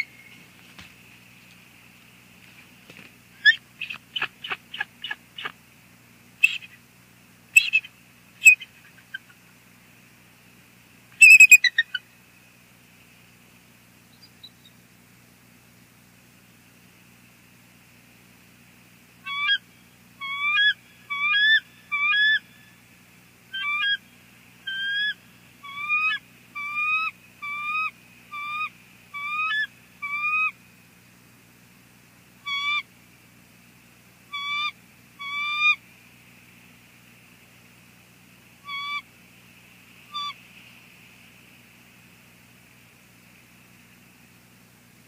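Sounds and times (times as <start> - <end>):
eagles chattering calls: 6.4 - 6.8, 7.6 - 9.5, 11.2 - 12.0, 19.3 - 19.6, 20.2 - 22.4, 23.5 - 24.0, 24.7 - 30.6, 32.4 - 32.8, 34.3 - 35.8, 38.6 - 39.1, 40.1 - 40.4.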